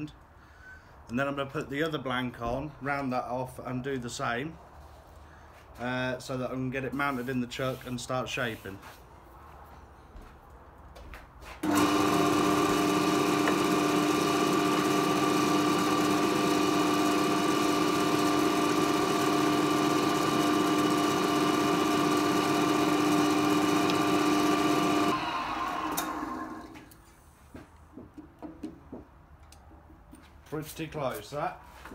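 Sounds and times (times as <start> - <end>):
wood lathe motor humming: 11.6 - 26.9.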